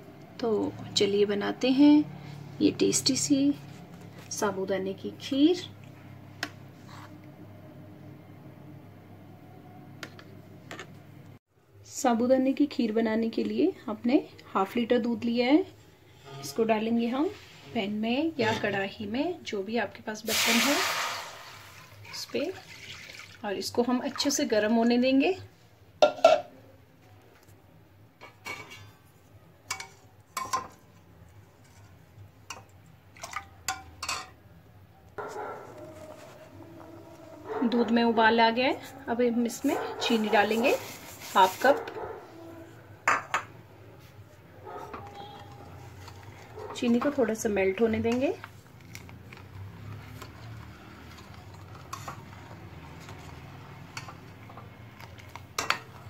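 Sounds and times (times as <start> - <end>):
liquid sloshing: 20.6 - 24.4
metal spoon scraping pan: 50.2 - 54.2.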